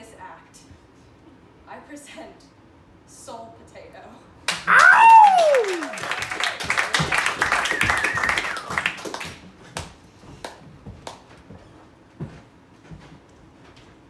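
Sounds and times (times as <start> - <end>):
audience clapping: 4.5 - 11.2
audience cheering: 4.6 - 9.2.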